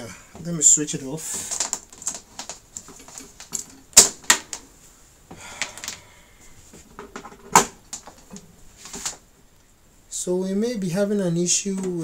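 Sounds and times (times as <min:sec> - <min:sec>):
handling clicks and knocks: 0:01.3 - 0:04.7, 0:06.8 - 0:09.2.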